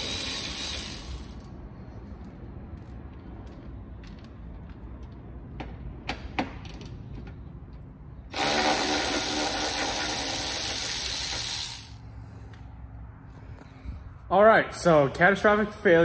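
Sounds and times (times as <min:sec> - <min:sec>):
loud whirring hiss: 0:00.0 - 0:01.2.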